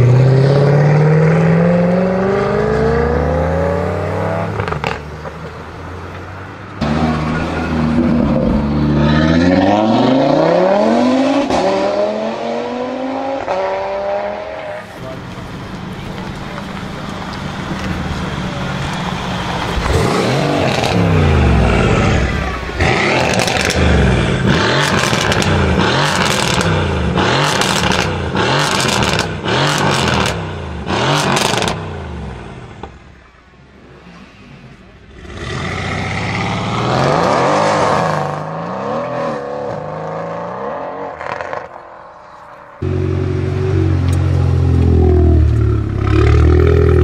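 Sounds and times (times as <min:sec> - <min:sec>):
car engine revving hard: 0:06.8 - 0:14.7, 0:19.8 - 0:32.2, 0:33.9 - 0:41.7
exhaust cracks: 0:15.0 - 0:31.8.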